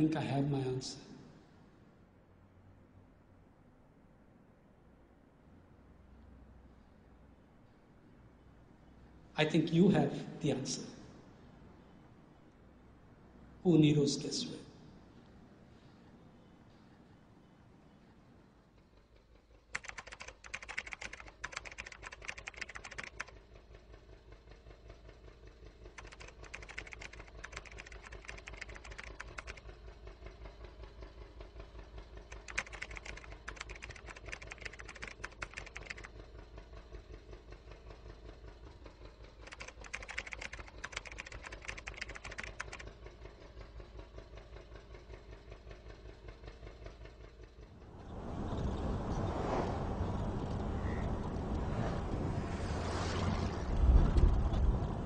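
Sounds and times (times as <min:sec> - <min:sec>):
rapid typing clicks: 0:19.7 - 0:23.6, 0:25.9 - 0:29.7, 0:32.2 - 0:36.2, 0:39.3 - 0:43.0.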